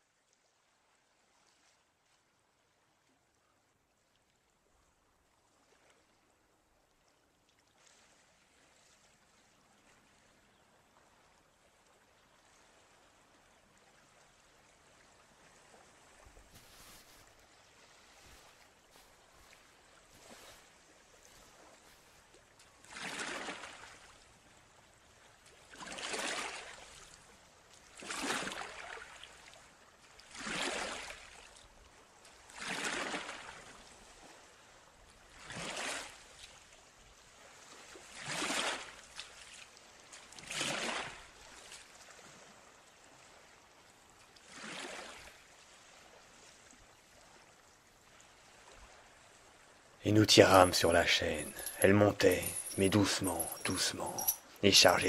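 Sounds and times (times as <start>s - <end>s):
faint water trickle: 0.0s - 32.7s, 41.1s - 55.0s
river water sloshing: 4.0s - 55.0s.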